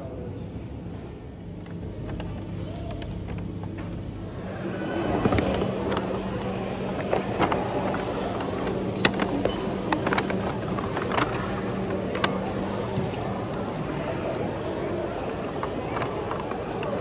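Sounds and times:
steady background hum: 0.0 - 17.0
paper bag rustling: 6.8 - 13.9.

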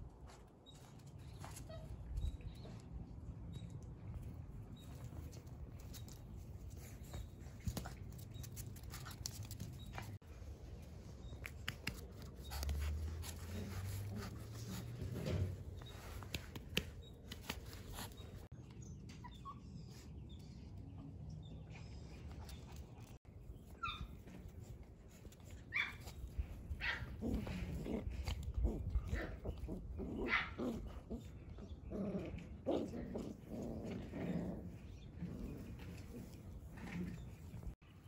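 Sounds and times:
small paws tapping on concrete: 0.0 - 29.7.

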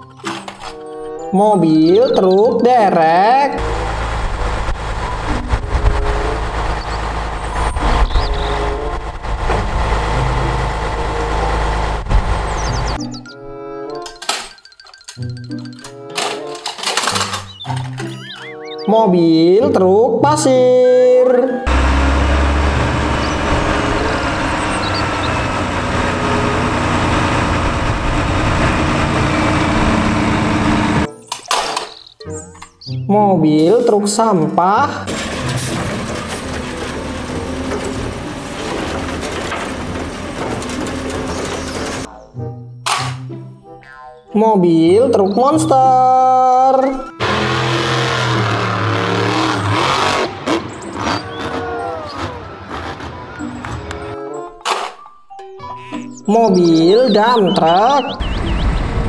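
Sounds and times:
diesel engine running: 3.6 - 13.2, 21.7 - 31.1, 34.9 - 42.1, 47.2 - 54.1, 57.1 - 59.0.

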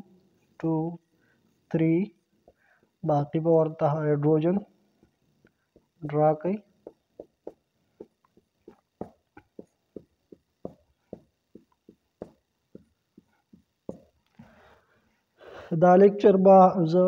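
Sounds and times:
marker scratching on whiteboard: 6.8 - 14.5.

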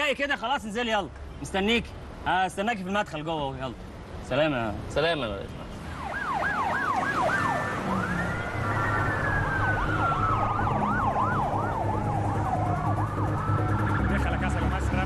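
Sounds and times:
low rumble of vehicles: 0.0 - 15.0
police sirens yelping and wailing: 5.8 - 15.0.

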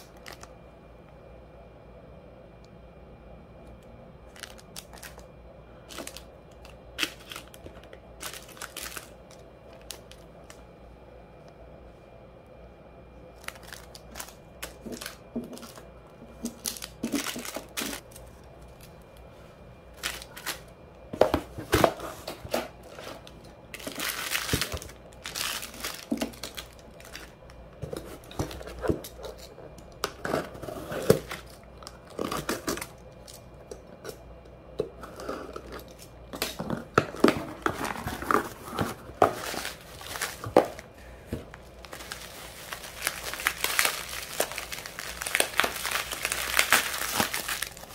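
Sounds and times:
plastic bags rustling and clicking: 0.0 - 0.5, 4.3 - 5.3, 5.9 - 10.6, 13.4 - 19.0, 19.9 - 34.1, 35.5 - 47.9
bubble wrap crinkling: 4.3 - 5.3, 5.9 - 10.6, 13.4 - 19.3, 19.9 - 20.7, 21.5 - 33.5, 35.2 - 47.9.

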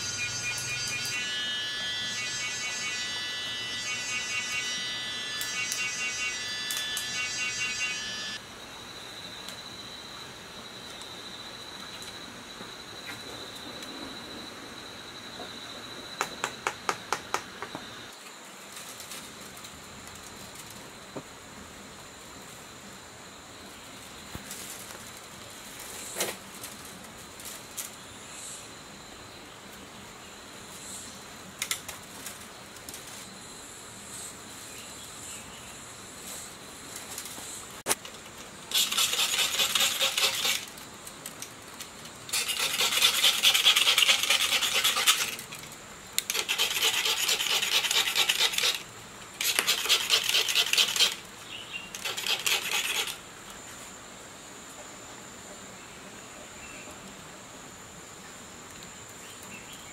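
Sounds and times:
rasping scraping of wire leads: 38.7 - 40.8, 42.3 - 51.3, 51.9 - 53.2.

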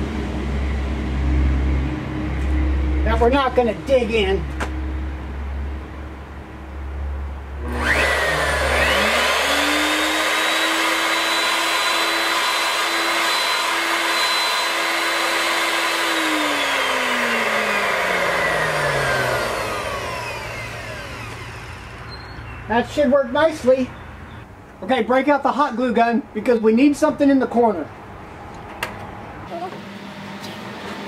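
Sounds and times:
router high whine: 7.6 - 22.8.

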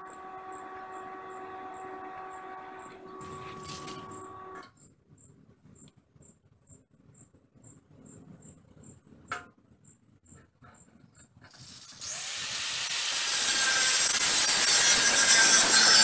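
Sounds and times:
machine hum with pitched tones: 0.0 - 4.6.

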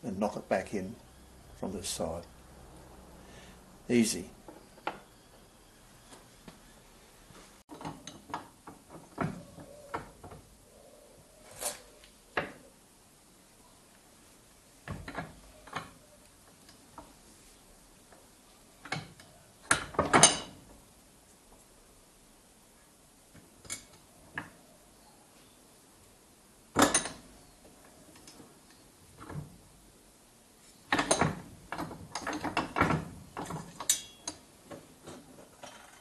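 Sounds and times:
metal clanks and knocks: 30.9 - 36.0.

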